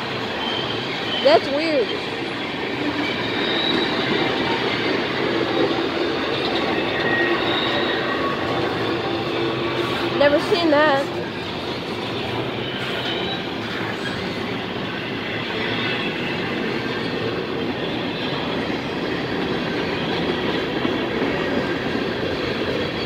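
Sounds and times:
train wheels rumbling on rail: 0.0 - 23.0
faint wheel squeal: 0.2 - 10.4, 12.0 - 17.1.

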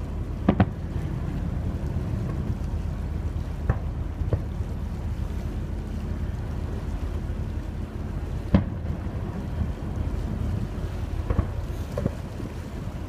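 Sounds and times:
ferry boat engine rumble: 0.0 - 13.0
wind on microphone: 0.0 - 13.0
distant fireworks bangs: 0.4 - 0.8, 8.5 - 9.0, 11.2 - 12.2.

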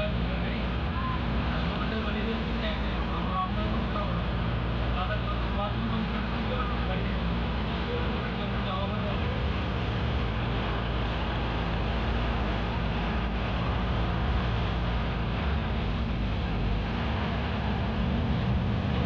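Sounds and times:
road noise: 0.0 - 19.0
vehicle engine rumble: 0.0 - 19.0
wind noise on microphone: 9.0 - 19.0.

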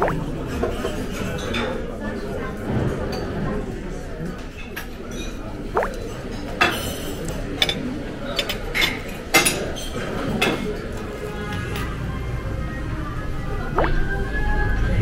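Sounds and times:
background murmur: 0.0 - 15.0
cutlery and dishes clinking: 4.6 - 11.9.

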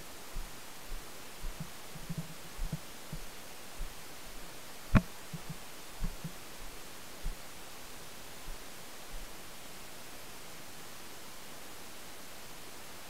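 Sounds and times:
muffled footsteps through brush: 0.0 - 7.5
steady hiss: 0.0 - 13.0.

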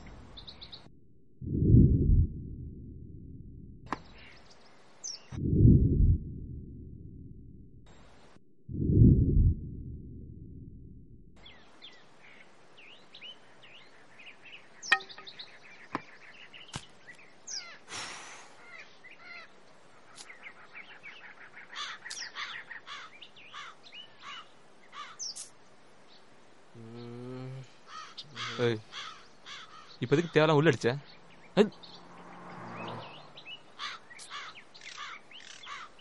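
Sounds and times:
birds chirping: 0.0 - 0.9, 11.4 - 17.9, 18.5 - 36.0
deep low rumble: 1.4 - 3.8, 5.4 - 7.8, 8.7 - 11.4.

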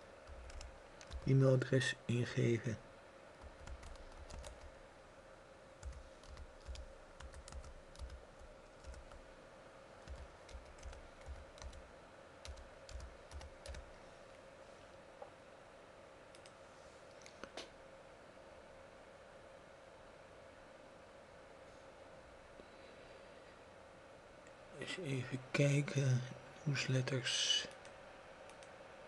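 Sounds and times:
faint steady hum: 0.0 - 29.0
computer keyboard typing: 0.2 - 1.4, 3.4 - 4.7, 5.8 - 9.2, 10.0 - 11.8, 12.4 - 13.9.

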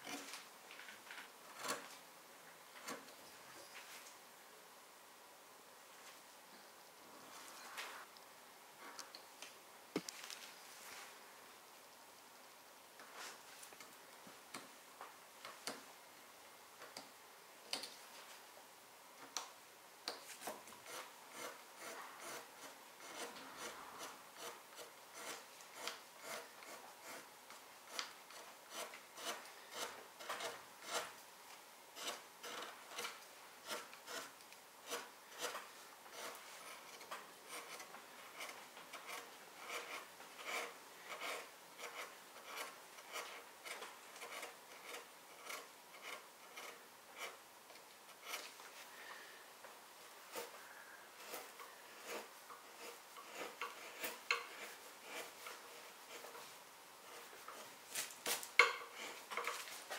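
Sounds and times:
carving tool scraping wood: 0.0 - 0.3, 1.4 - 2.0, 2.8 - 3.3, 20.3 - 31.2, 32.0 - 49.3, 50.0 - 59.9.

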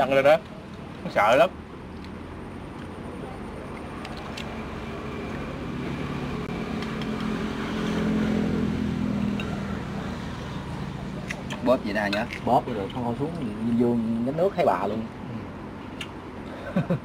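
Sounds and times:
motor engine passing by: 4.2 - 13.2.

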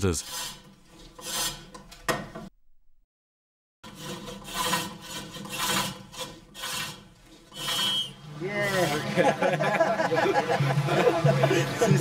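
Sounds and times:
gouge rasping on turning wood: 0.2 - 1.8, 3.8 - 9.3.

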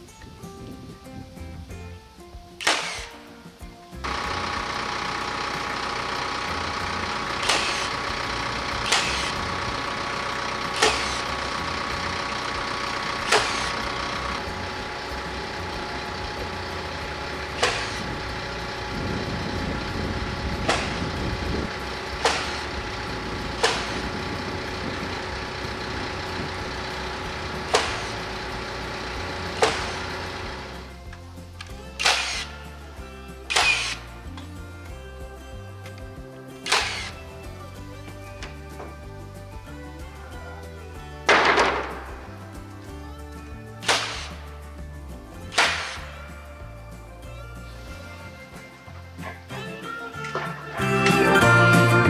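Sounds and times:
hammer striking nails: 2.6 - 3.2, 6.5 - 9.8, 10.7 - 14.3, 17.4 - 18.2, 22.1 - 22.8, 23.6 - 24.2, 27.6 - 28.7, 29.4 - 30.5, 32.0 - 32.5, 33.5 - 34.0, 36.6 - 37.2, 41.3 - 42.3, 43.8 - 44.4, 45.5 - 46.2
tractor diesel engine idling: 3.9 - 52.0.

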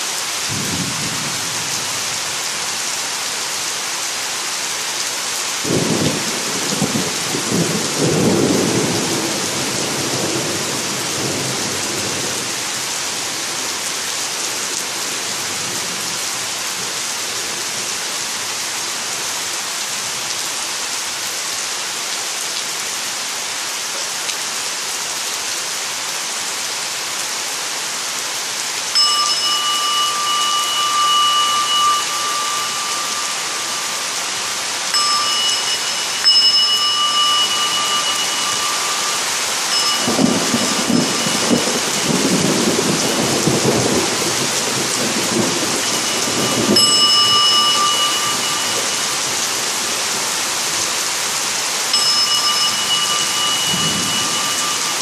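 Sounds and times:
heavy rain: 0.0 - 55.0
singing bowl ringing: 28.9 - 43.1, 45.6 - 49.7, 51.9 - 55.0
thunder rumbling: 36.9 - 48.7.

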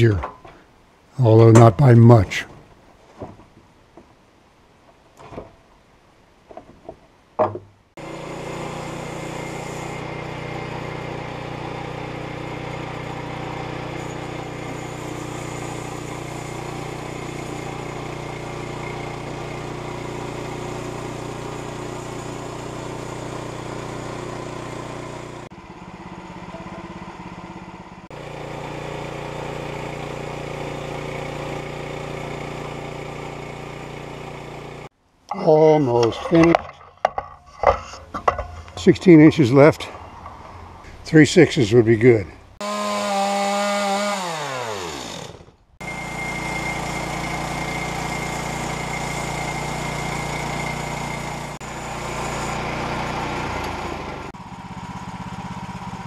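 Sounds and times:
knocks: 6.5 - 7.8
sawmill gasoline engine running: 8.0 - 34.9, 42.6 - 56.0.

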